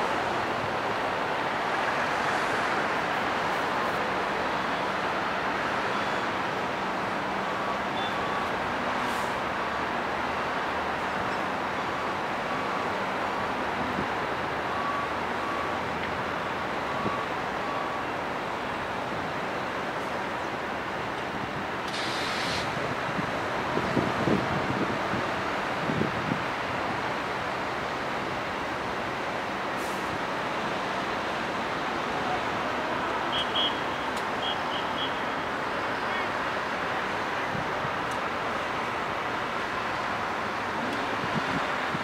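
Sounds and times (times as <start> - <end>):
trucks and tractor running: 0.0 - 42.0
vehicle warning beeper: 7.6 - 8.6, 14.7 - 15.9, 16.8 - 18.2, 33.3 - 35.4.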